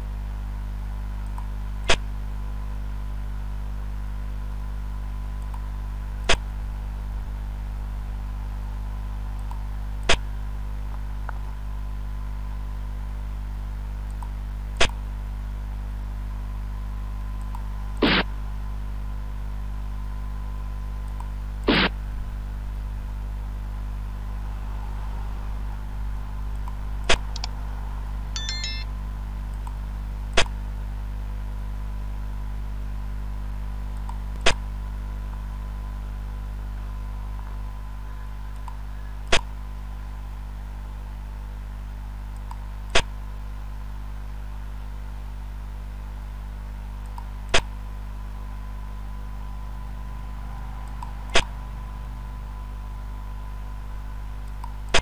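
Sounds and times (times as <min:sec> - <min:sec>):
low electrical hum: 0:00.0 - 0:55.0
game piece click effects: 0:28.4 - 0:28.9.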